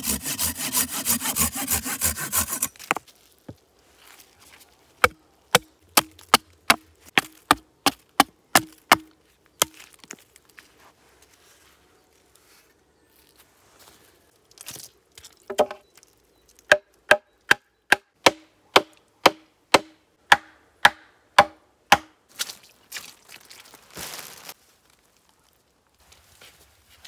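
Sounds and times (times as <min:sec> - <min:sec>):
plastic bag rustling: 0:23.2 - 0:24.9.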